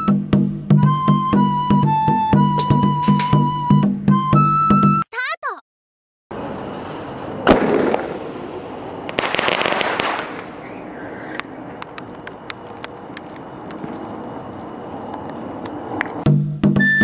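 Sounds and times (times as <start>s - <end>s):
firework bang: 6.3s - 12.4s
firework crackling and pops: 6.4s - 15.4s.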